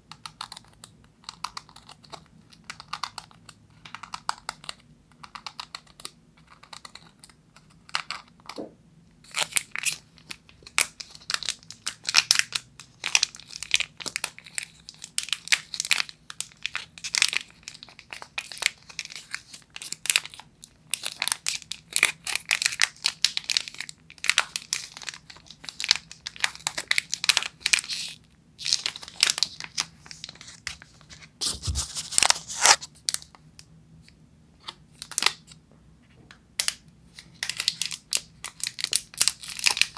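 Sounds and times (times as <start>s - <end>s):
wrapper crinkling: 9.2s - 33.3s, 36.6s - 39.9s.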